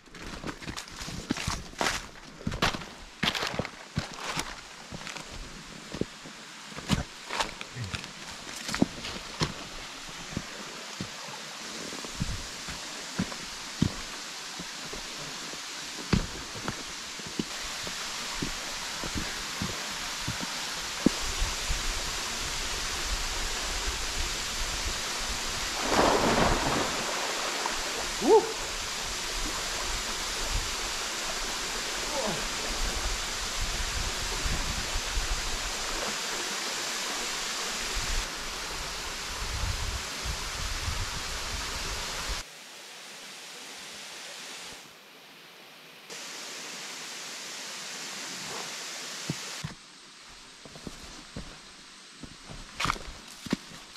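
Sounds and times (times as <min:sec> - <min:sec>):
waterfall rushing: 0:08.8 - 0:39.5
swimmer splashing: 0:25.7 - 0:29.5.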